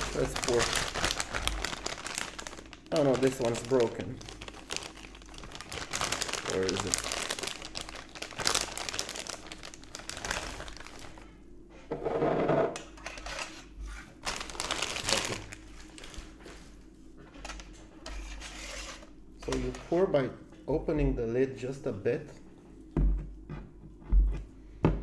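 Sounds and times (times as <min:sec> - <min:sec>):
plastic sleeve crinkling: 0:00.0 - 0:11.3, 0:14.1 - 0:16.7.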